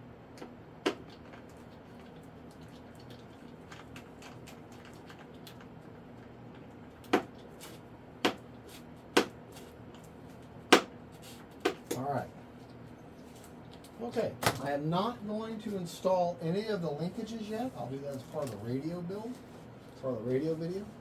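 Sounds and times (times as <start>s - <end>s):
low steady hum: 0.0s - 21.0s.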